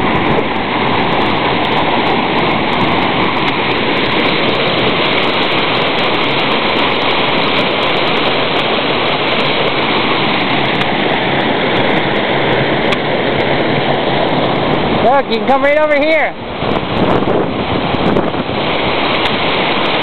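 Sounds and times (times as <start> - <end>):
waterfall rushing: 0.0 - 20.0.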